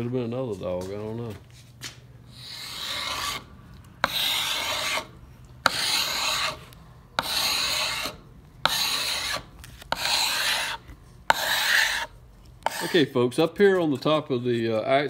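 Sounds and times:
file scraping wood: 2.3 - 13.1.

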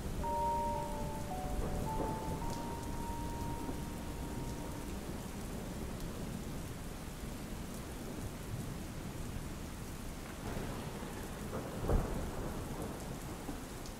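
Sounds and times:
thunder clap: 0.0 - 6.9
low rumbling thunder: 0.0 - 9.3, 10.3 - 13.5
steady rain: 0.0 - 13.9.

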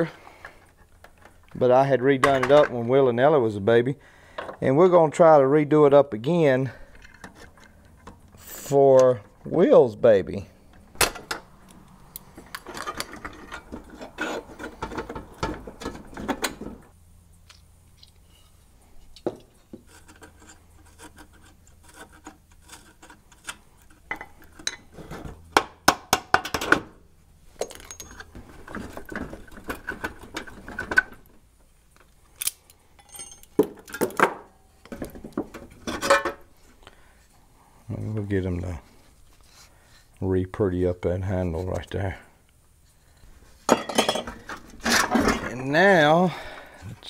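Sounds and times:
metal clinks and knocks: 27.5 - 31.2, 32.4 - 36.4, 43.7 - 45.6.

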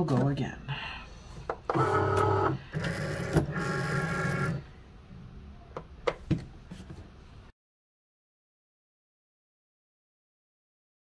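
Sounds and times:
cutting machine motors running: 1.7 - 4.6.

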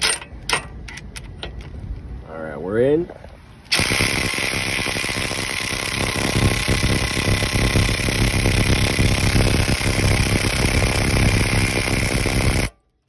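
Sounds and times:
impact driver rattling: 3.7 - 12.7.

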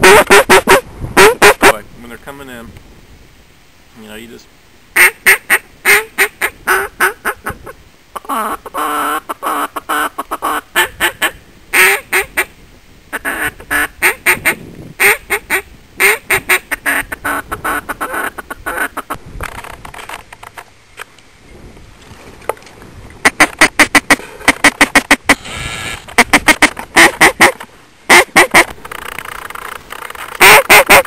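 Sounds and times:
duck call quacking: 0.0 - 1.7, 5.0 - 7.6, 8.2 - 12.5, 13.1 - 19.2, 23.2 - 25.4, 26.2 - 31.0.

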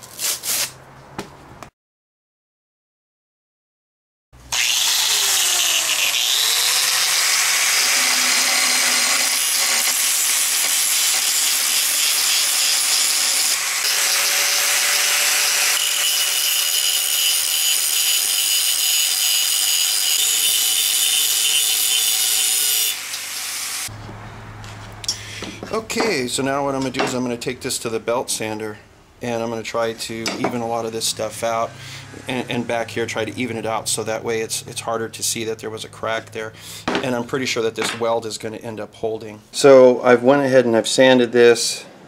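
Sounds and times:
angle grinder grinding steel: 4.5 - 23.9.

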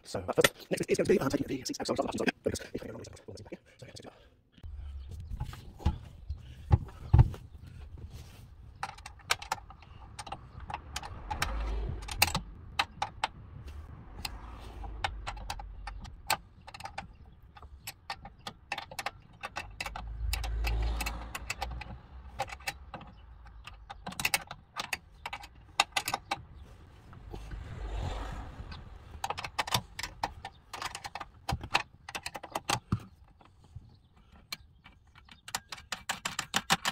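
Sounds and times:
dull bumps: 4.7 - 18.4.

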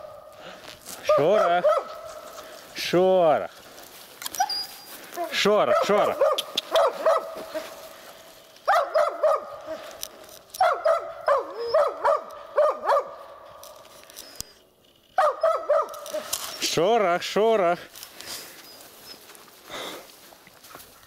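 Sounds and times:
dogs barking: 1.0 - 2.3, 5.2 - 7.9, 8.6 - 10.0, 10.6 - 13.5, 15.2 - 16.6.

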